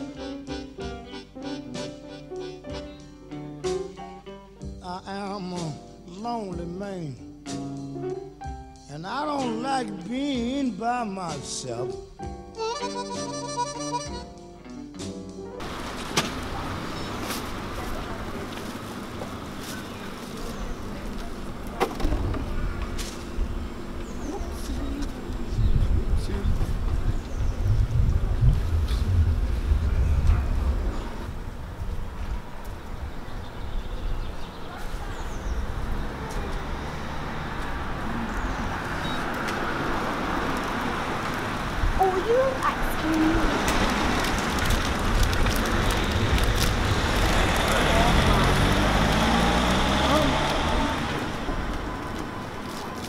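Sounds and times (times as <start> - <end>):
harmonica music: 0.0 - 3.6, 11.4 - 15.1
passing traffic: 8.1 - 14.6, 15.6 - 53.0
low rumble: 20.4 - 34.2.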